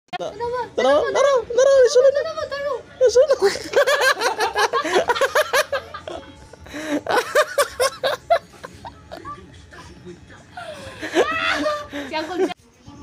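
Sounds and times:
high-pitched laughter: 0:10.6 - 0:12.5.

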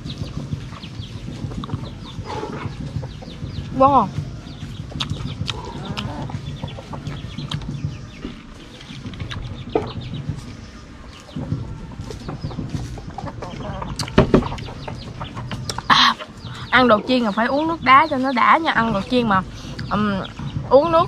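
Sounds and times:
chickens clucking: 0:00.0 - 0:21.0
crunching and chewing fried food: 0:04.4 - 0:15.9.

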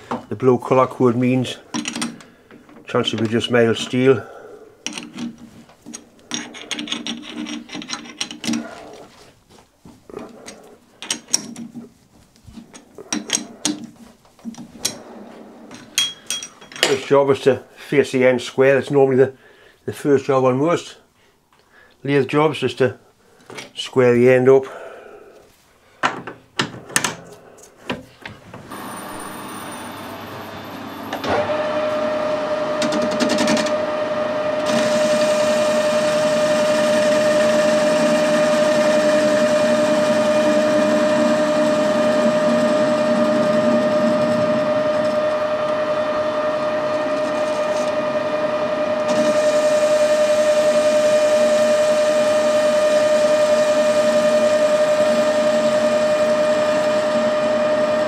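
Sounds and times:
lathe cutting steel: 0:28.7 - 0:58.0
metal lathe gear whine: 0:28.7 - 0:58.0.

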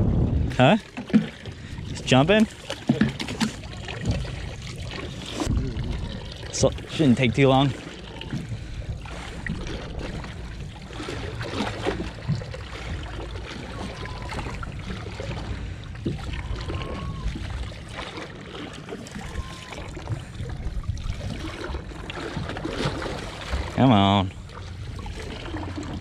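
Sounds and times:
steady low rumble: 0:00.0 - 0:00.9, 0:03.6 - 0:18.0, 0:20.0 - 0:22.4, 0:23.2 - 0:26.0
water lapping against boat hull: 0:00.0 - 0:26.0
faint whistle-like tones: 0:13.7 - 0:14.6, 0:16.3 - 0:17.4, 0:19.2 - 0:20.0.

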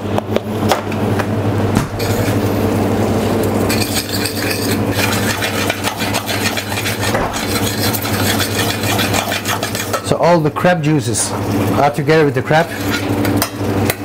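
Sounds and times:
steady low hum: 0:00.0 - 0:14.0
metal spoon scraping saucepan: 0:03.7 - 0:10.4.

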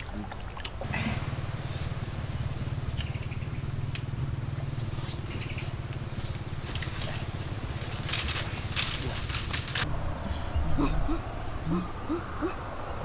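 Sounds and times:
low hum: 0:00.0 - 0:13.0
leaves and undergrowth rustling: 0:00.9 - 0:10.6.

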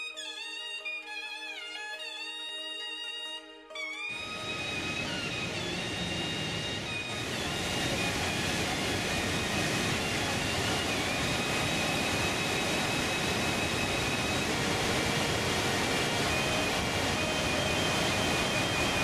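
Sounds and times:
waterfall rushing: 0:04.1 - 0:19.0.

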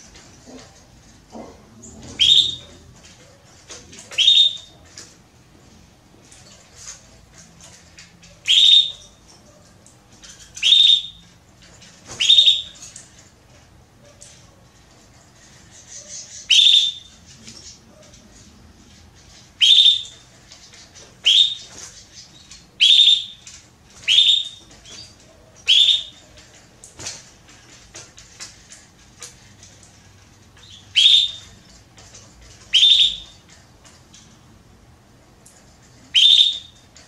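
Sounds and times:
canary calling: 0:01.4 - 0:03.0, 0:04.1 - 0:04.9, 0:08.0 - 0:11.3, 0:12.1 - 0:13.2, 0:15.4 - 0:18.2, 0:19.3 - 0:26.6, 0:30.6 - 0:31.8, 0:32.6 - 0:33.6, 0:36.1 - 0:37.0.

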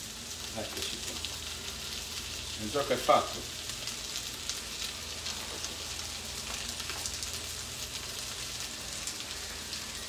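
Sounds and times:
fish sizzling in oil: 0:00.0 - 0:10.0.

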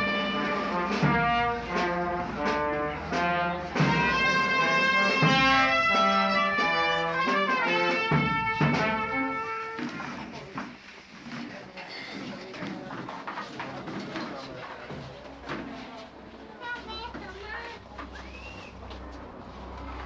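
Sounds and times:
brass band playing: 0:00.0 - 0:10.3.

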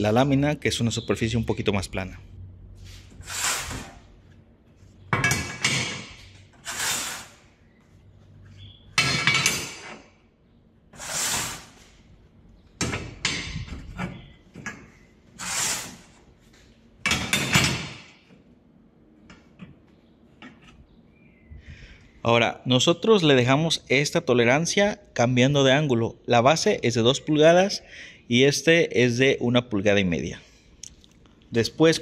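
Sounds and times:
steel pieces clanking and scraping: 0:05.1 - 0:07.4, 0:08.9 - 0:10.2.

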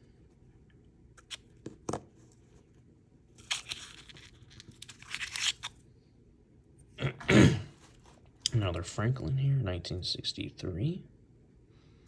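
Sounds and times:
paper wrapper tearing and crinkling: 0:03.3 - 0:05.8.

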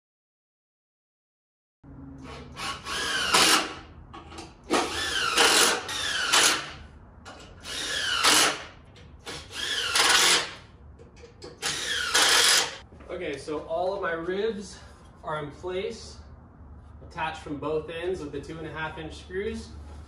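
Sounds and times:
impact drill driving screws: 0:02.2 - 0:03.8, 0:04.7 - 0:06.8, 0:07.6 - 0:10.6, 0:11.5 - 0:12.8.

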